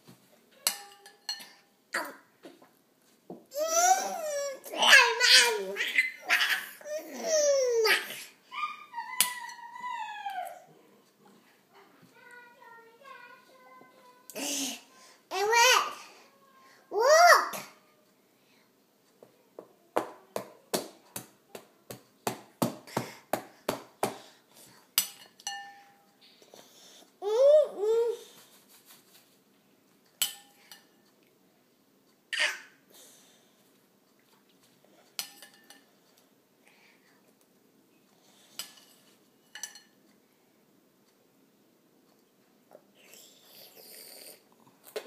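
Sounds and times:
metal spoon clinking glass bowl: 0.6 - 1.6, 25.0 - 26.1, 30.2 - 31.0, 35.2 - 35.9, 38.6 - 40.0
hand slapping plastic plate: 20.0 - 24.2.

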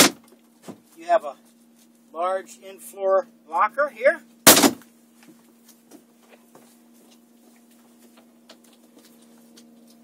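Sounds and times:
steady low hum: 0.0 - 10.0
footsteps on boat deck: 5.2 - 10.0.

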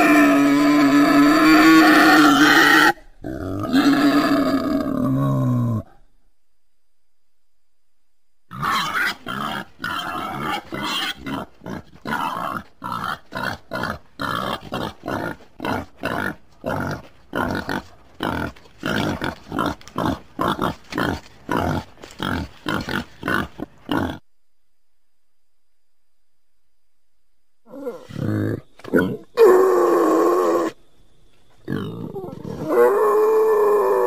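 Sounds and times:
wild boar grunting: 0.0 - 6.0, 8.5 - 24.2, 31.6 - 34.0.

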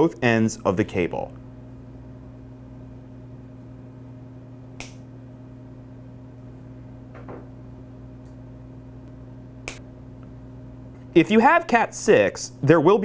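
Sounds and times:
steady low hum: 0.0 - 13.0
wire cutters snipping: 4.8 - 5.0.

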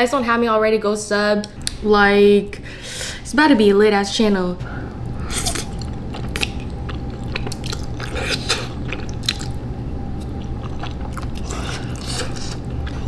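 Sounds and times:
wet mouth sounds: 5.2 - 9.6, 10.2 - 13.0.

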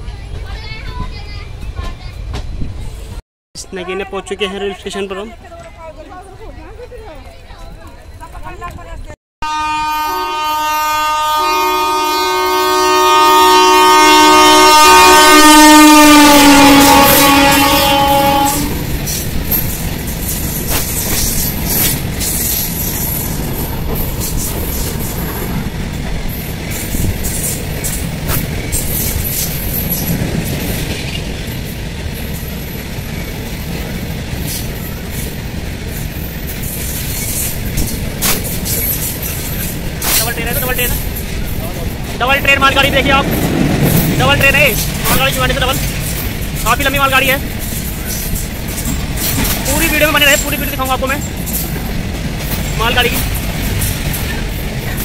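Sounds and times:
train horn blast: 9.4 - 18.9
train wheels clattering on rails: 15.9 - 55.0.

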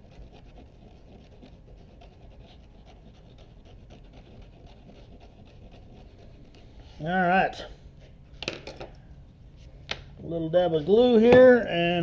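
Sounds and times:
rougher scratching leather: 0.0 - 7.1.

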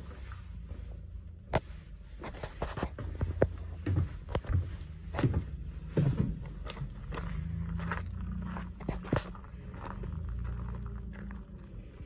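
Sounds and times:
steady low hum: 0.0 - 12.0
footsteps on metal steps: 1.6 - 10.0
footsteps on gravel: 2.2 - 11.8.

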